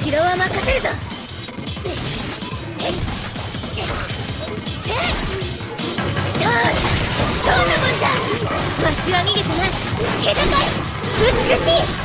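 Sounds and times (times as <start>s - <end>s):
dramatic background music: 0.0s - 12.0s
smashing and whacking impacts: 0.2s - 12.0s.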